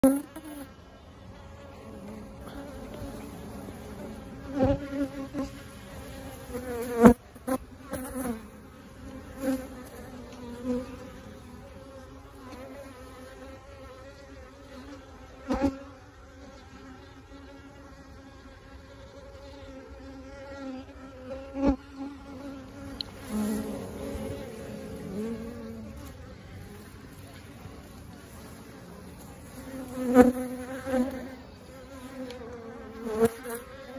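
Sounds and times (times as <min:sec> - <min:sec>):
single bee buzzing past: 0:00.0 - 0:00.8, 0:01.6 - 0:33.9
honeybee swarm humming: 0:00.0 - 0:33.9.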